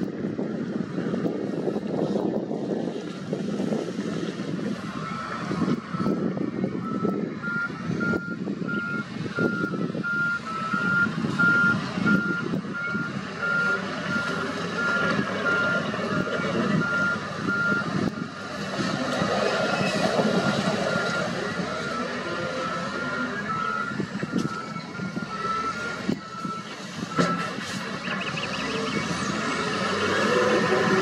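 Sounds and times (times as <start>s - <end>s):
diesel engine of wheel loader: 0.0s - 31.0s
reversing alarm beeping: 6.8s - 18.3s, 19.7s - 30.4s
soil and rock being pushed: 18.5s - 23.4s.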